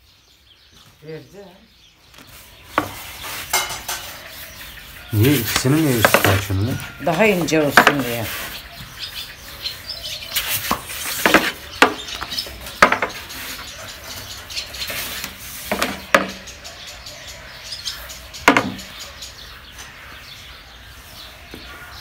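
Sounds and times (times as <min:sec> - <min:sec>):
rolling pin knocking on board: 0:06.0 - 0:06.5, 0:12.8 - 0:13.2, 0:18.5 - 0:18.8.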